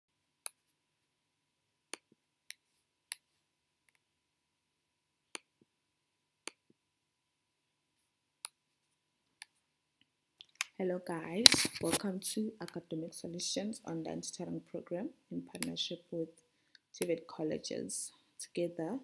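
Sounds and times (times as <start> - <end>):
computer mouse clicking: 15.5 - 15.8.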